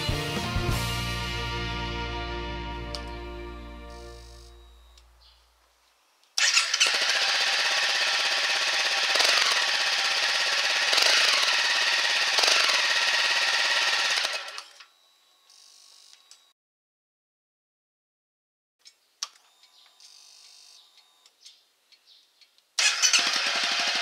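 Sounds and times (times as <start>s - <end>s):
motorcycle engine revving: 6.4s - 14.6s, 22.8s - 24.0s.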